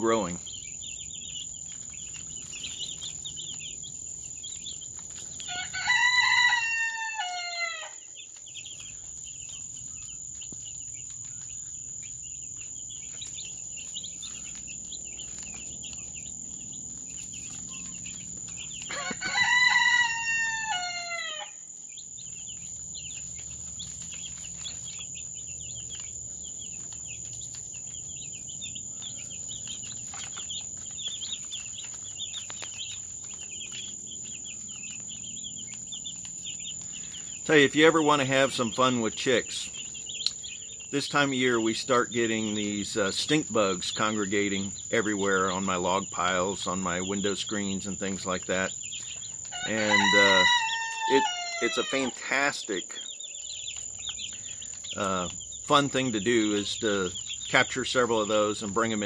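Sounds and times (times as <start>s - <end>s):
chicks peeping: 0.0s - 59.0s
rooster crowing: 5.4s - 8.2s, 18.7s - 22.0s, 49.5s - 52.2s.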